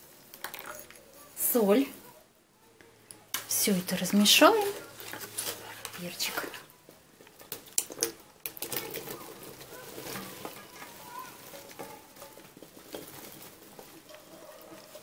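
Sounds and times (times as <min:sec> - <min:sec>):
wet rustle of pieces piling: 0:03.3 - 0:15.0.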